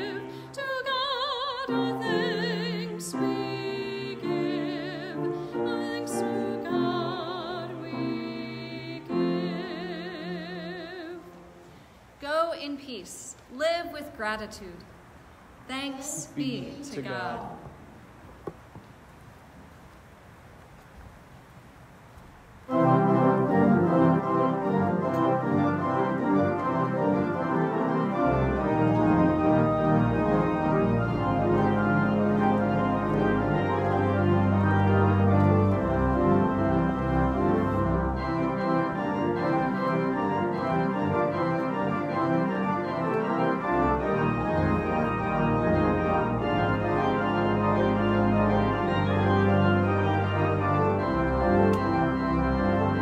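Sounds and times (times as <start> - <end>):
pipe organ chords: 0.0 - 0.5, 1.5 - 11.7, 22.7 - 53.0
low organ pedal notes: 22.7 - 53.0.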